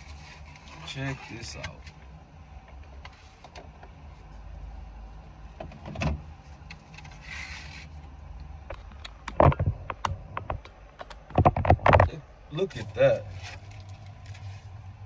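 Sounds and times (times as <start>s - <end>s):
sharp knocks and thumps: 8.7s - 12.2s.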